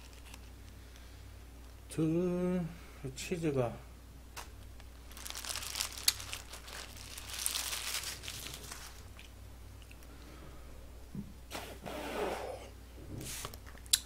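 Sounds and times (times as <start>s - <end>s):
paper wrappers crinkling: 0.0s - 0.5s, 4.4s - 10.0s.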